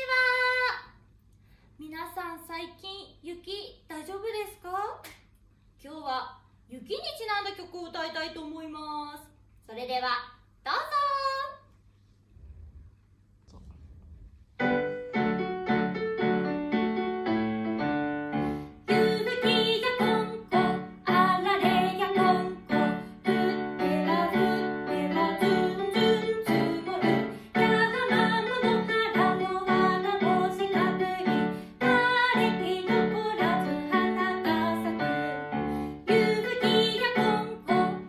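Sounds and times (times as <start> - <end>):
woman singing: 18.9 - 38.0.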